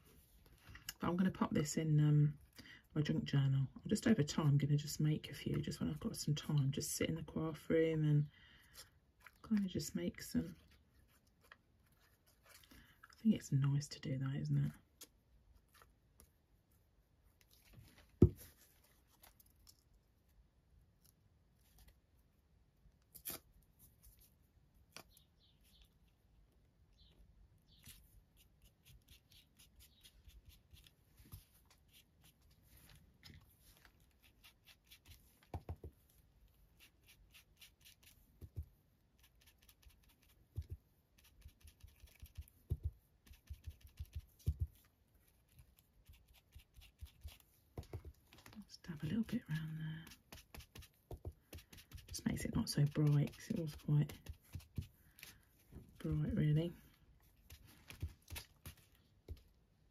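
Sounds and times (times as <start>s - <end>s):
paper and tools handled: 10.6s - 13.0s
light taps and snips on paper: 39.4s - 44.9s, 45.5s - 48.6s, 49.5s - 55.4s, 57.5s - 59.5s.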